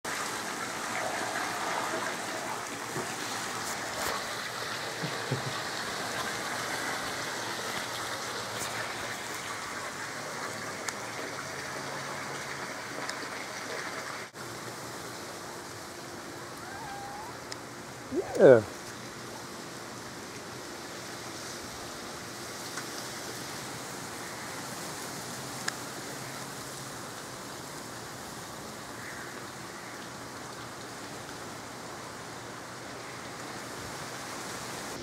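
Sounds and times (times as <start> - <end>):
steady rushing hiss: 14.3 - 35.0.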